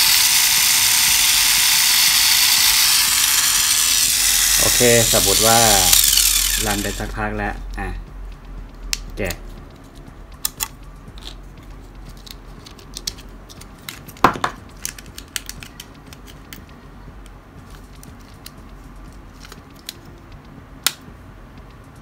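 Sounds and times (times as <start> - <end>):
hard plastic clicks and snaps: 14.8 - 16.7.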